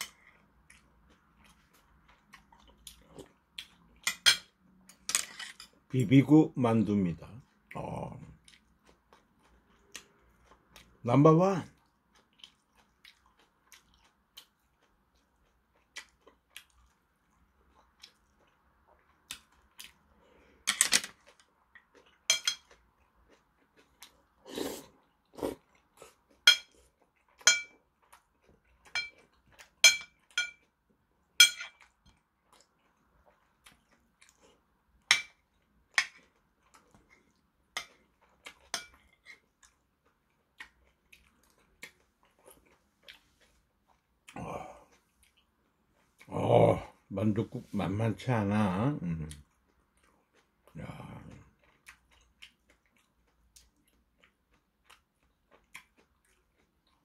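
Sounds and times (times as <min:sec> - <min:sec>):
chewing: 0:00.0 - 0:04.2, 0:07.4 - 0:11.0, 0:11.7 - 0:47.1, 0:49.2 - 0:57.0
spoon clinking on porcelain bowl: 0:22.3 - 0:22.7, 0:26.5 - 0:26.8, 0:27.4 - 0:27.7, 0:29.0 - 0:29.2, 0:29.8 - 0:30.6, 0:31.4 - 0:31.7.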